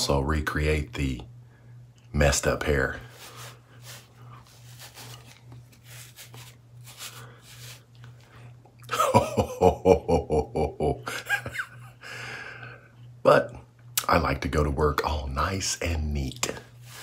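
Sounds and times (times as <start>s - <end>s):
hand rubbing a beard: 2.8s - 8.4s, 16.7s - 17.0s
man laughing ho ho ho: 8.8s - 12.0s.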